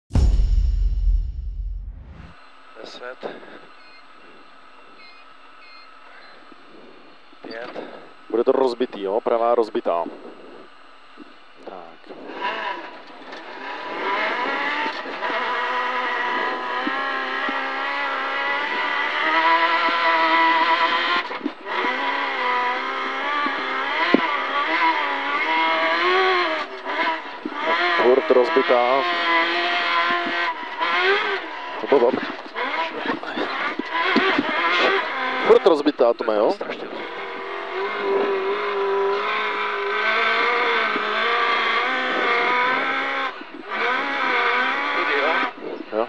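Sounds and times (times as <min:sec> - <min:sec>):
sharp knock: 0:00.1 - 0:02.4
car engine revving: 0:12.2 - 0:35.6, 0:36.9 - 0:45.6.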